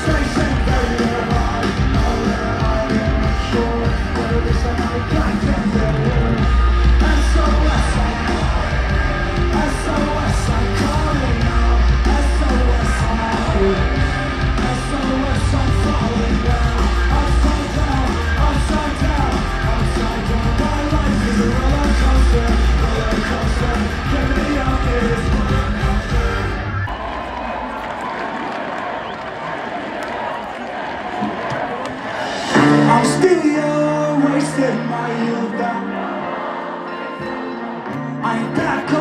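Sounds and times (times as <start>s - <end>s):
heavy pulsing bass: 0.0s - 26.9s
live rock band playing: 0.0s - 26.9s, 32.2s - 39.0s
singer shouting and singing: 0.0s - 26.9s, 30.3s - 39.0s
drums: 0.0s - 36.6s, 38.2s - 39.0s.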